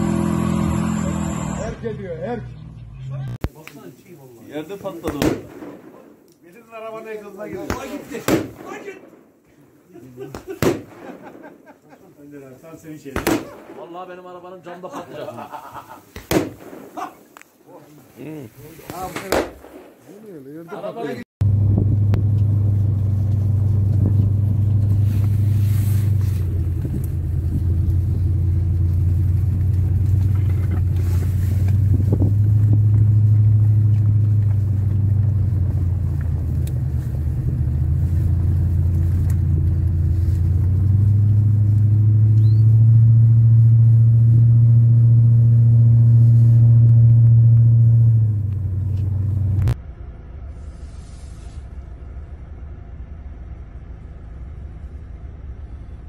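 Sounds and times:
vehicle engine droning: 0.0 - 3.5, 21.4 - 56.0.

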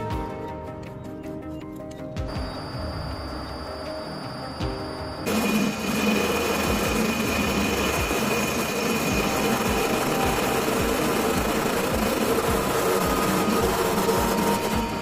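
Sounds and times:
lathe motor hum: 5.2 - 15.0.

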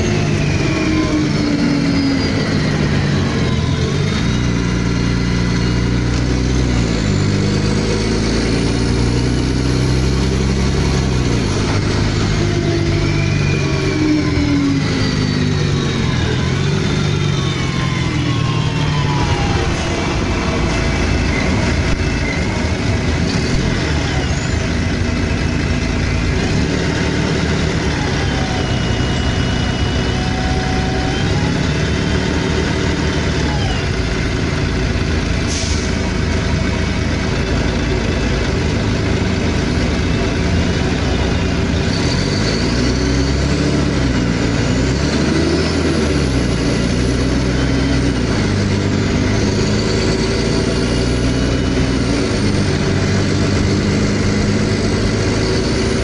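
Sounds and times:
diesel bus engine: 0.0 - 56.0.

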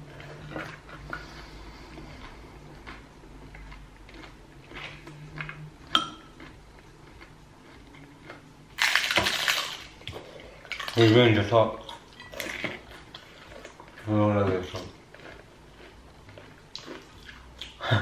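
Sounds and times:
crunch of taco shell bitten: 8.8 - 9.9.

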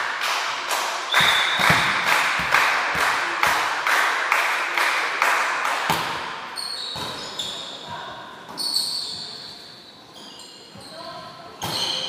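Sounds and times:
rhythmic clapping: 0.0 - 5.9
volleyball strike: 1.1 - 3.7, 5.8 - 7.3
sneakers squeaking on gym floor: 5.9 - 12.0.

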